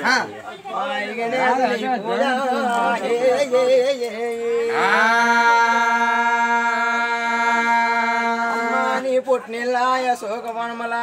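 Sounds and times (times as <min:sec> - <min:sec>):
man singing chant-like song: 0:00.0 - 0:11.0.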